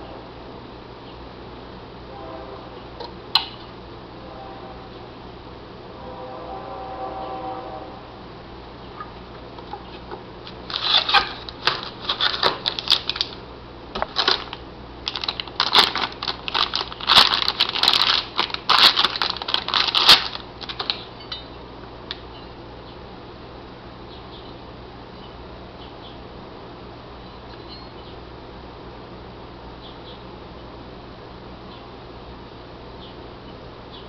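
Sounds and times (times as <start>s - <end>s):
plastic bag crinkling: 10.5s - 13.4s, 14.0s - 21.1s.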